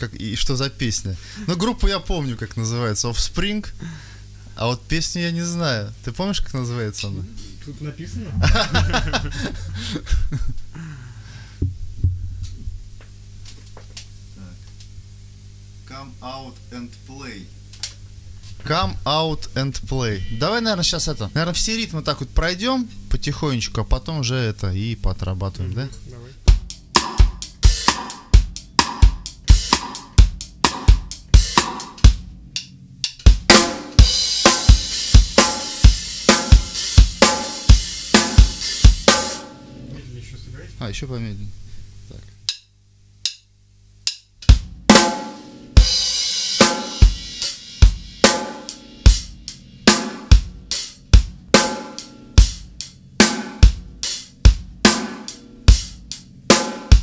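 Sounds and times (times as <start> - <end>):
drum kit beat: 0.0 - 2.5, 7.0 - 16.4, 25.8 - 40.1, 42.4 - 57.0
low electrical hum: 0.0 - 57.0
soft low thumps: 8.0 - 10.9, 11.5 - 13.4
cymbals ringing: 18.9 - 22.0, 33.6 - 40.0.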